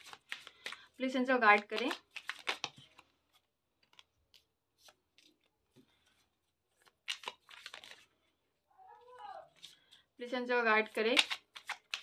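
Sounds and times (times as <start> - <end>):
cards sliding and flicking: 0.0 - 0.8, 1.7 - 5.9, 6.8 - 8.0, 11.2 - 12.0
cards riffling: 1.6 - 3.1, 6.8 - 8.1, 11.2 - 12.0.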